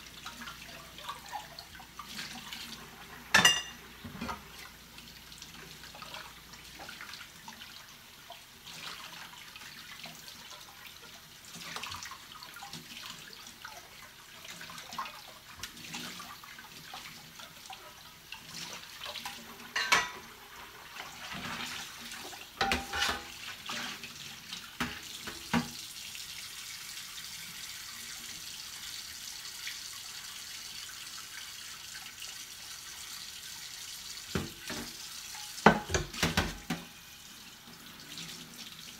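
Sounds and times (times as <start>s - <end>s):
dishes clinking and knocking: 3.3s - 4.4s, 19.7s - 20.3s, 22.6s - 23.3s, 35.6s - 36.9s
tap running into steel sink: 34.3s - 35.0s.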